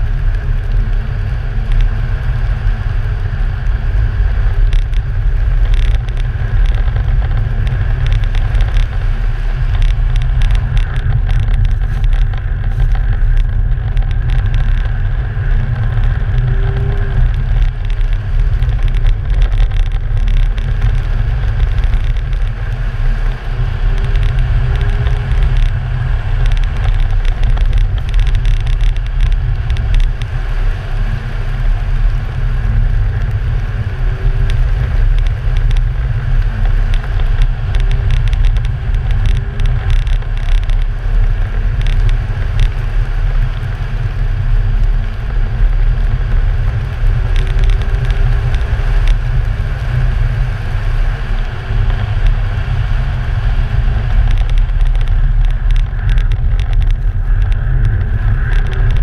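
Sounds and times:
car engine: 0.0s - 59.0s
wind rumble on microphone: 0.0s - 59.0s
small clicks: 4.5s - 30.4s, 32.7s - 44.2s, 45.9s - 50.1s, 51.4s - 59.0s.

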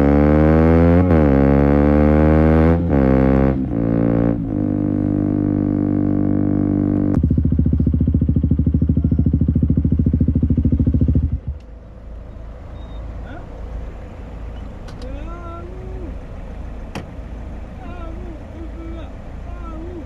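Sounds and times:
motorcycle engine accelerating: 0.0s - 11.8s
exhaust burble on the overrun: 0.0s - 12.0s.

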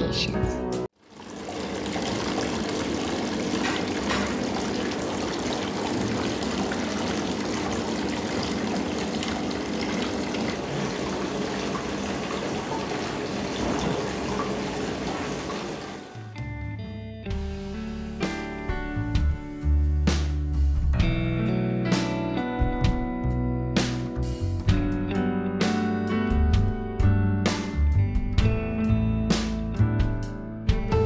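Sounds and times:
fountain water trickling: 1.0s - 16.1s.

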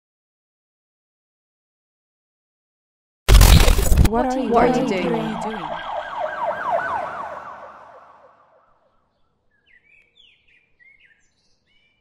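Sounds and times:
siren yelping: 4.4s - 8.7s
bird chirps: 7.9s - 12.0s.

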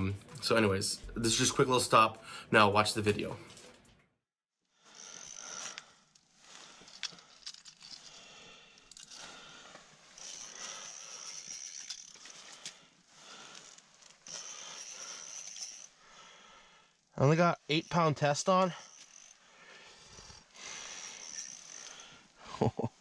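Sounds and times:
rustling and clicks of fishing reel: 4.9s - 16.1s, 17.7s - 22.5s.

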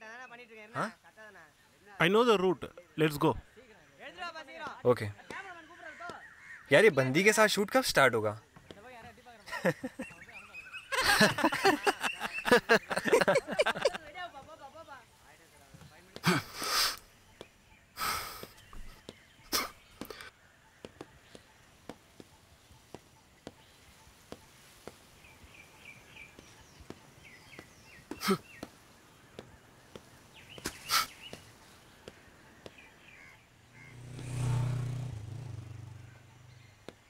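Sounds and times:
birds chirping: 0.0s - 37.0s
low whoosh: 33.8s - 36.6s.

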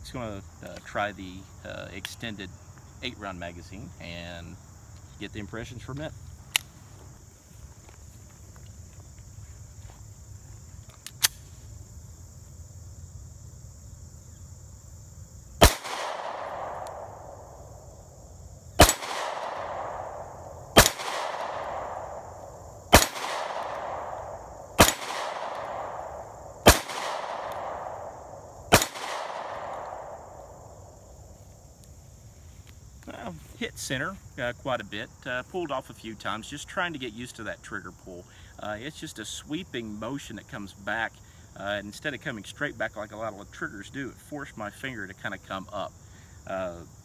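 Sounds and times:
sharp click: 10.8s - 11.4s
pistol shots echoing: 15.6s - 17.4s, 18.8s - 30.4s.

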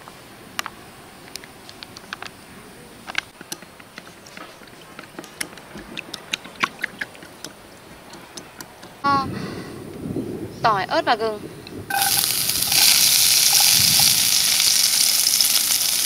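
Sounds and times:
chopsticks clicking against a bowl: 3.1s - 9.0s.

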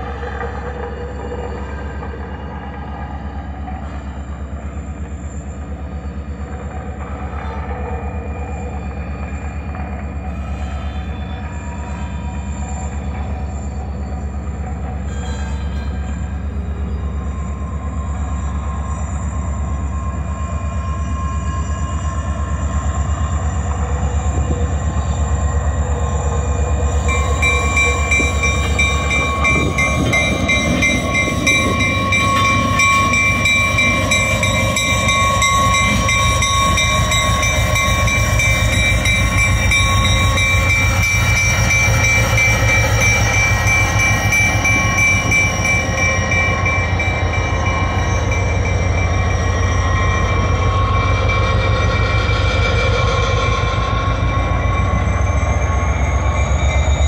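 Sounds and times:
locomotive engine rumble: 22.4s - 57.0s.

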